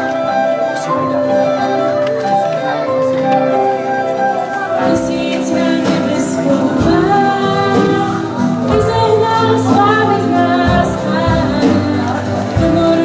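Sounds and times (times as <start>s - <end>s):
live band playing: 0.0s - 13.0s
girl singing amplified: 4.7s - 13.0s.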